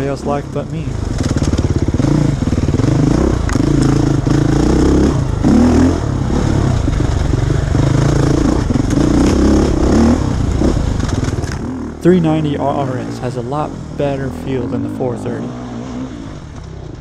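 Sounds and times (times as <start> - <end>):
dirt bike engine revving: 0.0 - 17.0
sharp clicks of clatter: 1.1 - 1.9, 3.4 - 4.1, 10.6 - 11.7.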